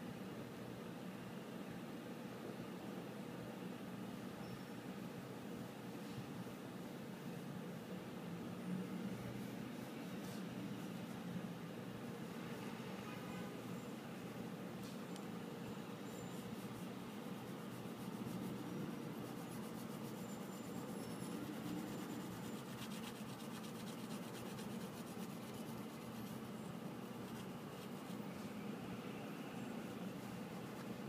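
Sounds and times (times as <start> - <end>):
pencil scratching on paper: 16.1 - 28.5.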